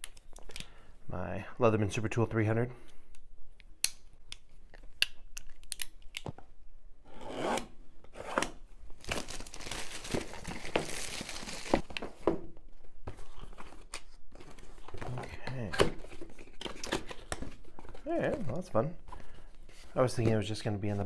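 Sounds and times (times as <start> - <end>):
cardboard tearing and rustling: 8.2 - 12.1.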